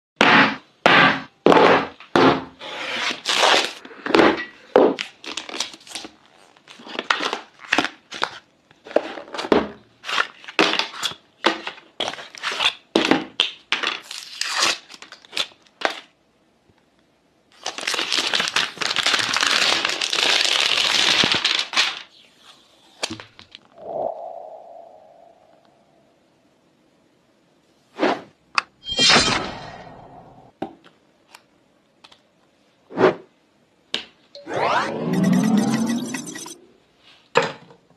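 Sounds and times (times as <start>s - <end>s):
packaging crinkling and tearing: 3.2s - 3.8s, 5.0s - 8.4s, 13.4s - 16.1s, 17.5s - 22.1s
continuous tearing rustle: 17.5s - 22.1s.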